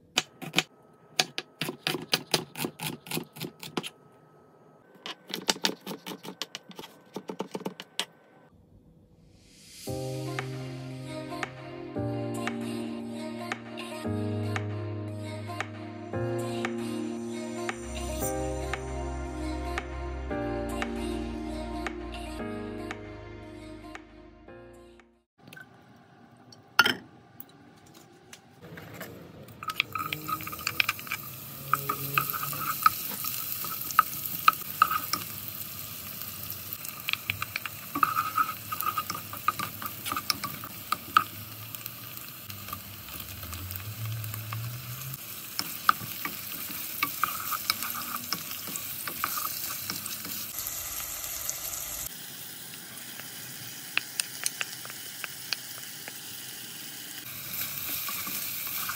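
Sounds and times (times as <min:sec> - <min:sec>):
utensil scraping a pan: 0:29.7 - 0:34.0, 0:37.9 - 0:41.3, 0:45.9 - 0:50.4
food sizzling in hot oil: 0:29.7 - 0:58.9.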